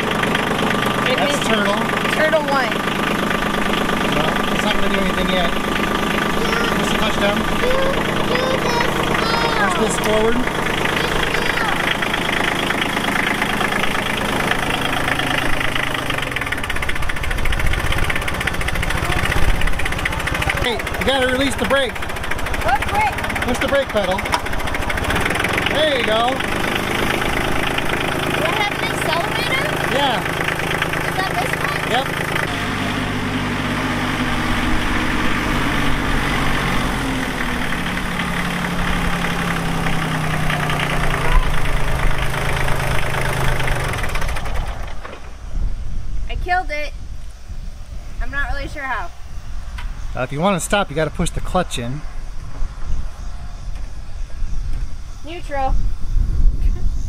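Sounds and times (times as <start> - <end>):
tractor diesel engine idling: 0.0 - 45.5.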